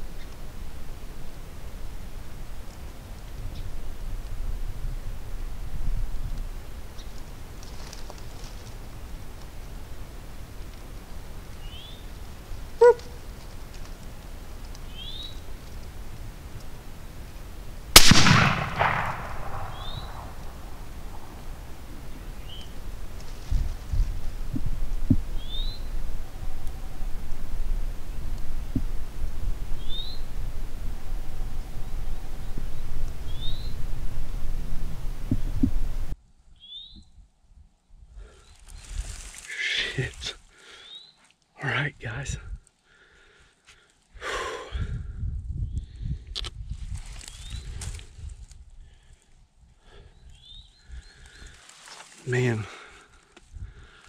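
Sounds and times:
bird chirping: 11.6 - 12.2, 14.8 - 15.5, 19.6 - 20.3, 25.4 - 26.0, 29.8 - 30.3, 32.5 - 33.8, 50.1 - 51.6
brief pitched yelp: 12.8 - 13.2
rifle shot echoing: 17.9 - 21.8
heavy low microphone rumble: 18.0 - 36.2.

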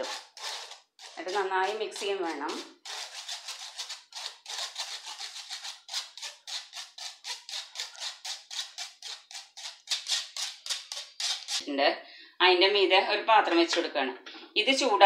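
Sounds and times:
sieve scratching while sifting: 0.0 - 11.6.

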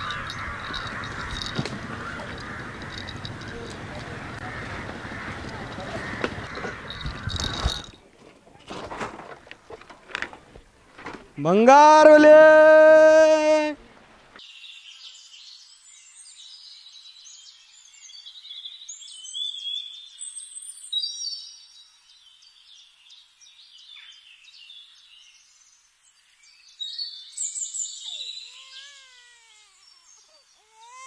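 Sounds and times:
birds chirping and whistling: 0.0 - 7.9, 26.8 - 29.0
baby crying faintly: 28.1 - 31.0.

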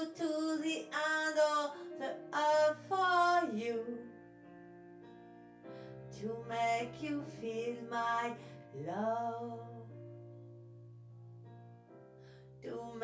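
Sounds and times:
woman singing a slow ballad: 0.0 - 4.2, 6.1 - 10.0, 12.6 - 13.0
piano backing track: 0.0 - 13.0.

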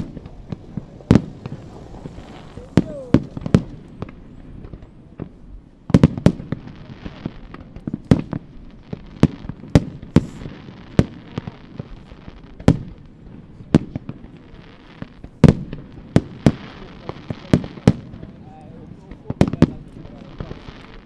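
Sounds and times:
firework shells bursting: 0.0 - 6.6
crackling hiss: 0.0 - 21.0.

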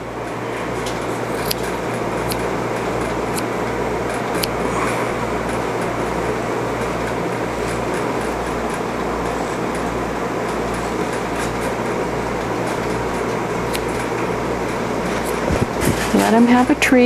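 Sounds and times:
rushing air noise: 0.0 - 16.4
machine hum: 0.0 - 17.0
scissors snipping: 1.4 - 2.5, 4.1 - 4.6, 13.7 - 14.1.

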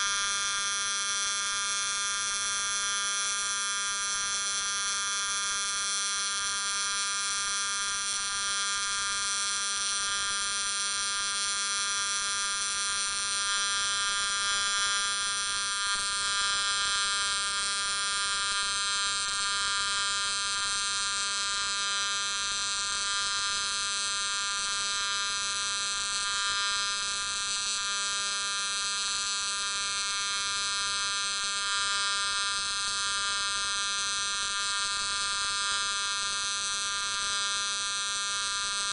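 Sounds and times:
welding arc buzzing: 12.5 - 38.9.

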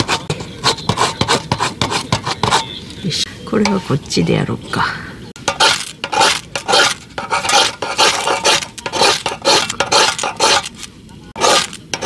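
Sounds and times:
knife scraping fire-starter rod: 0.0 - 2.8, 5.4 - 12.0.

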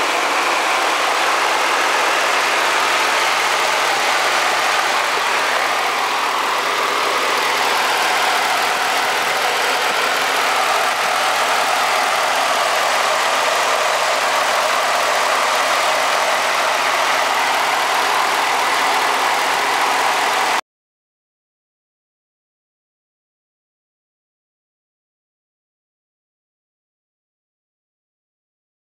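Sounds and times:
car engine idling: 0.0 - 20.6.

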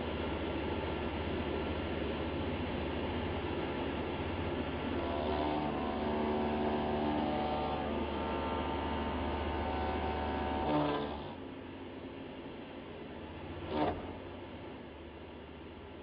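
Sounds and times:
router cutting wood: 5.0 - 11.4, 13.6 - 14.3.

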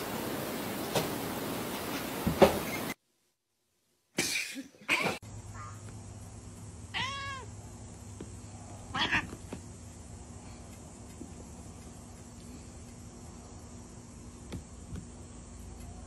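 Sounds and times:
cat meowing: 6.9 - 7.5, 8.9 - 9.4
harsh cat cry: 6.9 - 7.5, 8.9 - 9.4.

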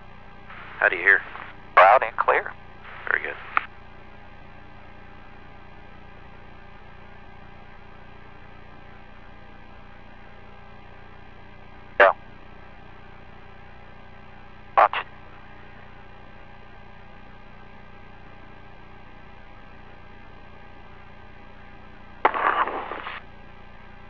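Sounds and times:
steady electrical hum: 0.0 - 24.0
radio blips: 0.5 - 3.7, 14.8 - 15.1, 22.2 - 23.2.

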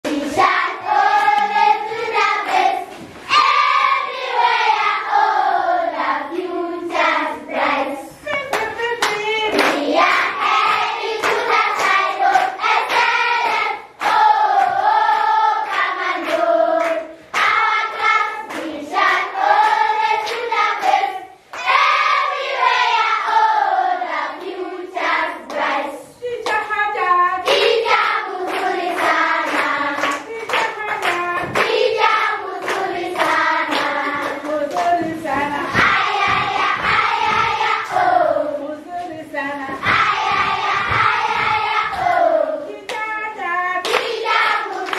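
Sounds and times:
children singing together: 0.0 - 44.9
children clapping hands: 1.1 - 2.9, 8.4 - 21.8, 27.5 - 38.1, 39.8 - 42.2, 42.8 - 43.2, 43.8 - 44.9.

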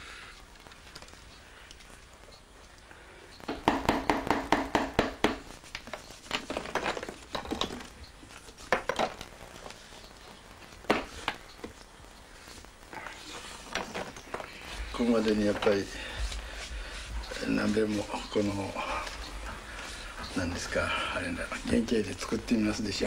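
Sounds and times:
plaster cracking and clinking: 5.8 - 8.0.

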